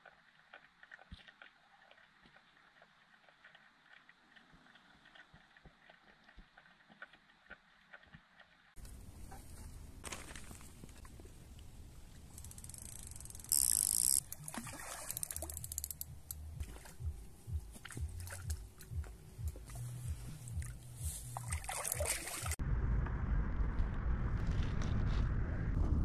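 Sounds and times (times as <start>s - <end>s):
water sloshing and splashing: 0.3s - 12.3s, 14.2s - 22.6s.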